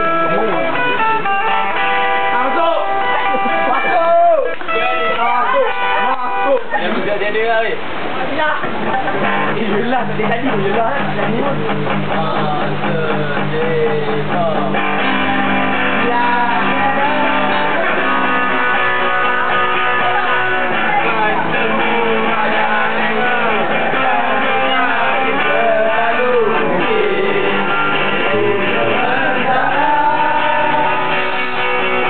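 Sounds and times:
guitars strumming: 0:00.0 - 0:07.0, 0:08.6 - 0:32.0
person singing: 0:12.0 - 0:32.0.

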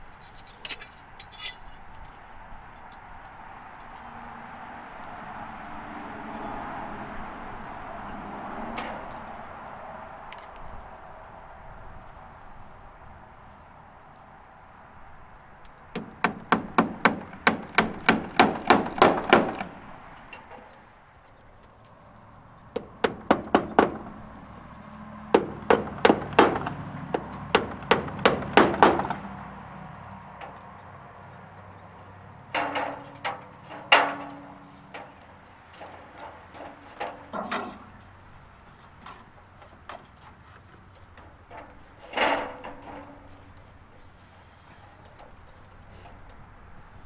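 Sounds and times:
hammer striking nails into wood: 0:15.9 - 0:19.8, 0:22.7 - 0:24.1, 0:25.3 - 0:29.2.

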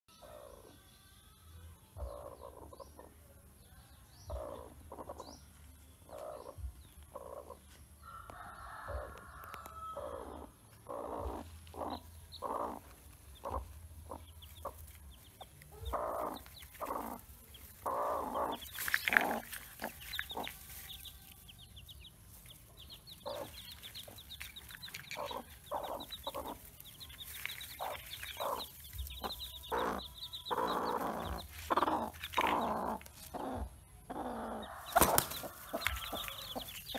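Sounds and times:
chicks peeping: 0:00.1 - 0:00.9, 0:01.9 - 0:03.2, 0:03.9 - 0:36.9
hen clucking: 0:02.0 - 0:03.1, 0:09.9 - 0:36.9.

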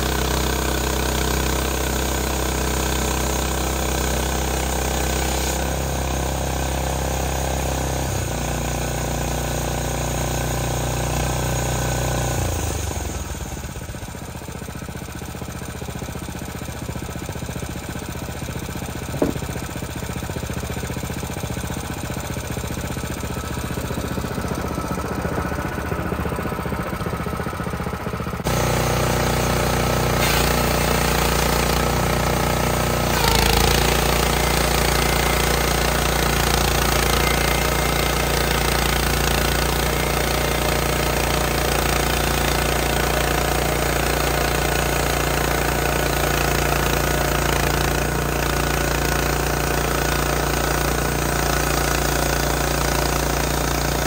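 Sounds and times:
gasoline engine running: 0:12.2 - 0:54.0.

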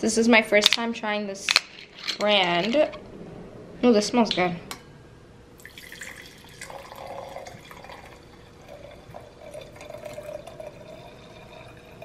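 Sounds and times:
wine pouring into a glass: 0:05.6 - 0:12.0.

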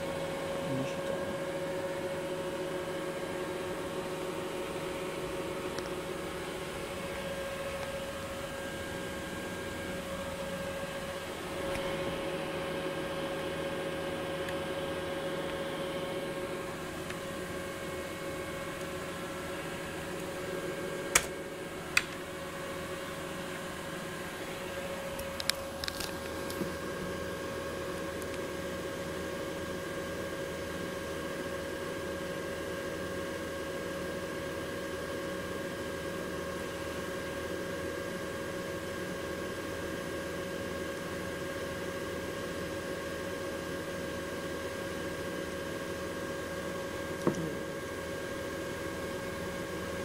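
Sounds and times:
cooling fans humming: 0:00.0 - 0:50.0
sharp clicks: 0:21.1 - 0:21.3.

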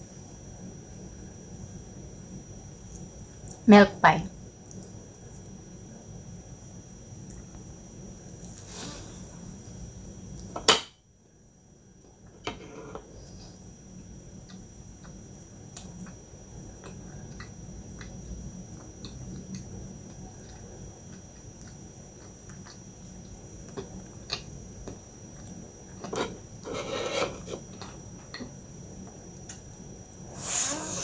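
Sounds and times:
chewing pastry: 0:14.4 - 0:29.7.

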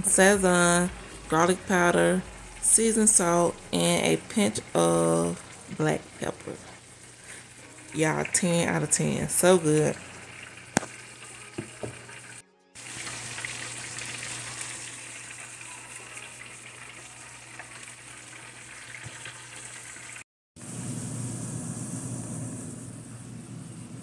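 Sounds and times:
low hum: 0:00.0 - 0:11.3
meat and peppers sizzling: 0:00.0 - 0:23.7.

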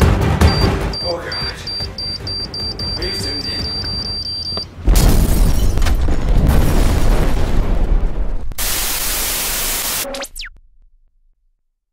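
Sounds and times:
explosion with deep rumble: 0:04.8 - 0:08.6
tv static hiss: 0:08.6 - 0:10.5.

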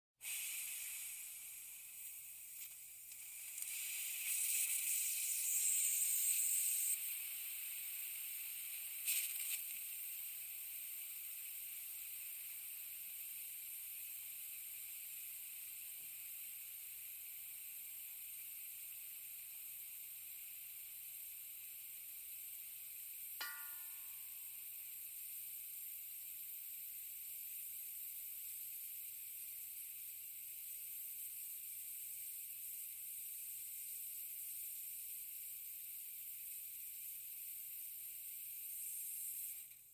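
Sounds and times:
air hissing from tank: 0:00.2 - 0:19.0, 0:27.4 - 0:39.9.

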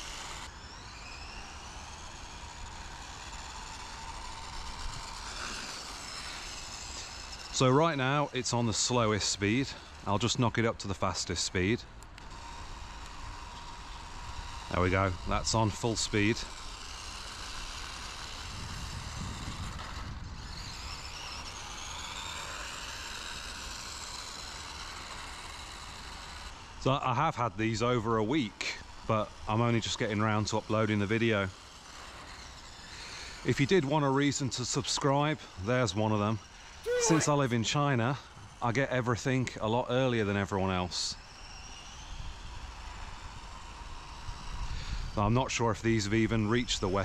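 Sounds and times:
toy truck motor whining: 0:00.0 - 0:37.6, 0:40.6 - 0:45.3
wind on microphone: 0:18.5 - 0:20.5.

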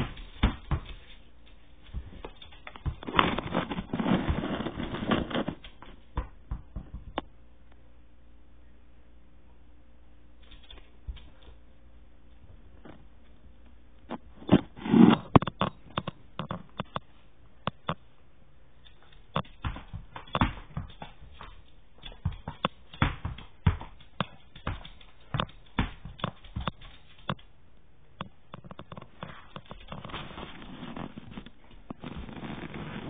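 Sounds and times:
soft rustling: 0:00.0 - 0:06.1, 0:28.8 - 0:33.0
dog claws on hardwood floor: 0:00.0 - 0:07.2, 0:10.4 - 0:11.6, 0:18.8 - 0:27.5, 0:28.5 - 0:33.0.

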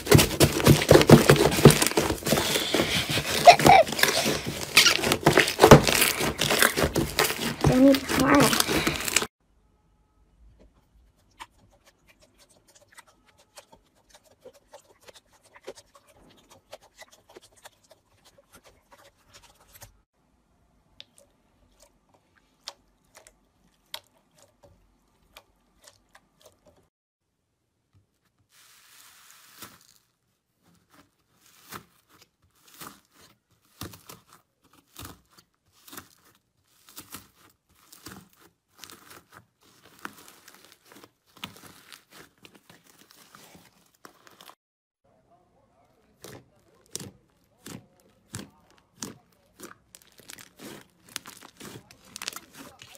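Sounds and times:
crumbly slime crackling: 0:00.0 - 0:09.3, 0:20.9 - 0:26.9, 0:28.1 - 0:44.6, 0:45.8 - 0:52.9
slime squeezed and kneaded: 0:00.0 - 0:09.3, 0:11.1 - 0:19.9, 0:28.5 - 0:44.6, 0:46.1 - 0:52.9.

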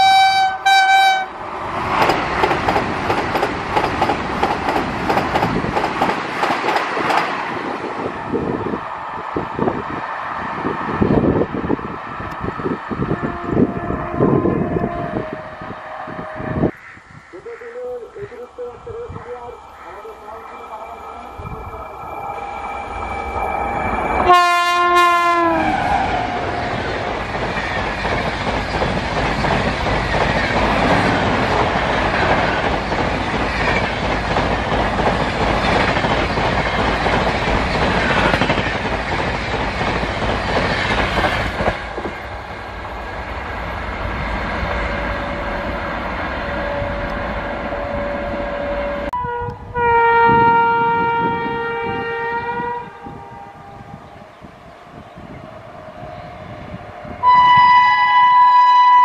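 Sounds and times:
locomotive air horn: 0:00.0 - 0:01.4, 0:13.0 - 0:16.7, 0:24.2 - 0:26.5, 0:46.4 - 0:53.2, 0:56.8 - 0:59.0
train coaches rumbling past: 0:00.0 - 0:59.0.

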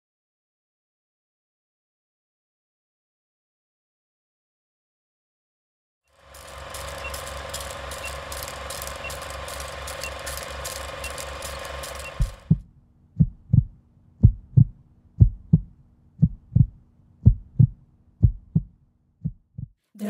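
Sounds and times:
rapid mechanical ticking: 0:06.1 - 0:12.6
steady hum: 0:06.2 - 0:18.8
deep heartbeat-like thumps: 0:12.2 - 0:19.8.

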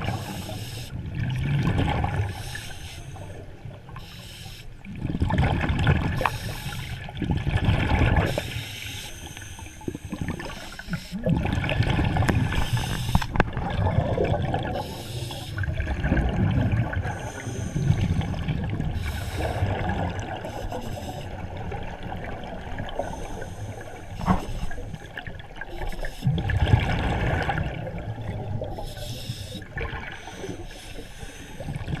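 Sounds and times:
diver exhaling bubbles underwater: 0:10.0 - 0:20.4, 0:26.3 - 0:28.8.

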